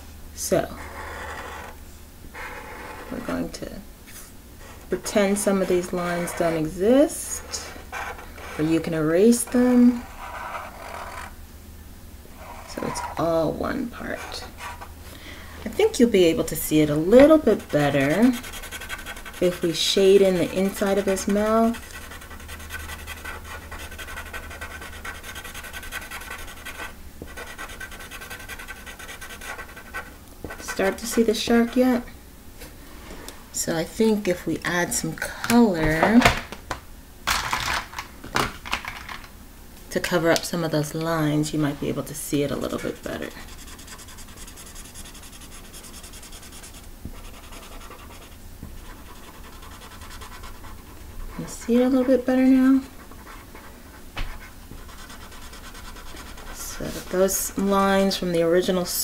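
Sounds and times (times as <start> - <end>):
marker scribbling on paper: 5.0 - 6.7, 14.0 - 14.9, 17.1 - 32.0, 42.6 - 57.8.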